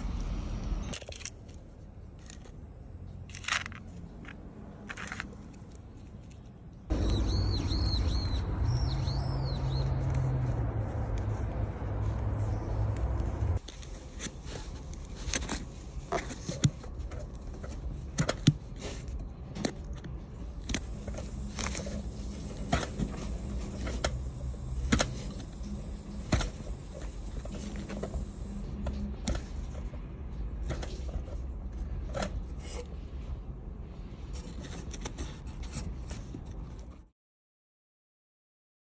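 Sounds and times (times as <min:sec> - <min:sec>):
low steady hum: 0:20.2 - 0:34.8.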